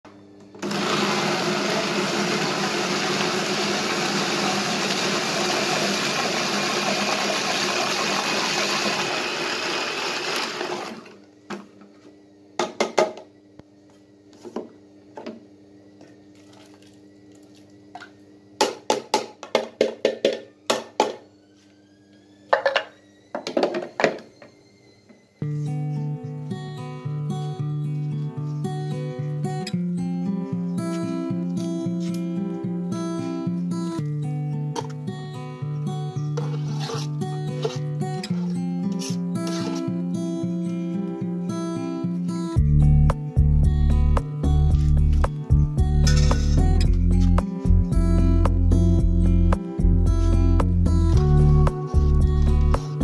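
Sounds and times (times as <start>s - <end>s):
electric food chopper running: 0.6s - 11.2s.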